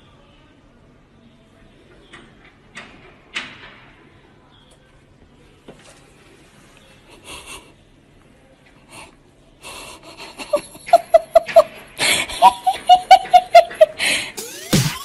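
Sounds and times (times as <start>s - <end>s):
person laughing hard: 10.0s - 14.8s.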